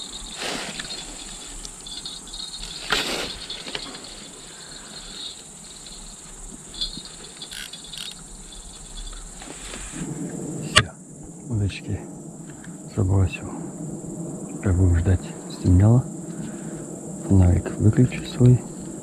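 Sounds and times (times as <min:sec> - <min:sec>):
rustling: 0:00.0 - 0:10.5
crickets chirping: 0:00.0 - 0:19.0.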